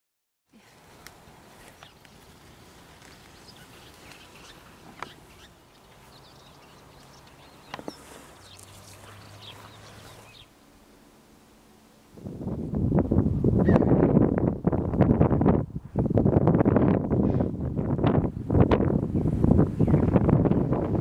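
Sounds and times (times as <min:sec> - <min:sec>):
low steady hum: 0:00.6 - 0:17.4
bird chirps: 0:01.6 - 0:02.3, 0:03.0 - 0:10.5.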